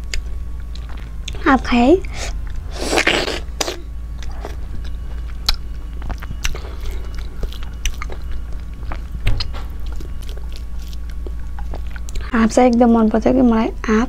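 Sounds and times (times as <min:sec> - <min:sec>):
steady low hum: 0:00.0 - 0:14.0
wet eating sounds: 0:02.0 - 0:12.8.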